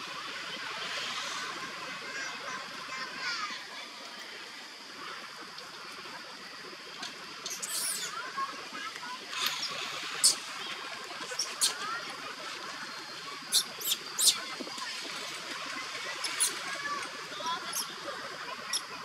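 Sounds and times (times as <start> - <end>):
soft chirping calls: 7.4 - 8.2, 13.5 - 14.4
baby monkey shrill squeals: 7.5 - 8.1, 11.4 - 11.8, 13.5 - 14.4, 16.2 - 16.6.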